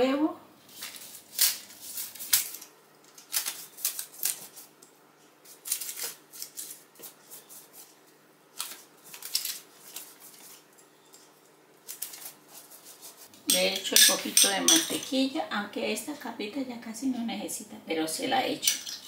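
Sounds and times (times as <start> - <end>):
pastry brush strokes: 4.4 - 8.2, 12.0 - 13.3.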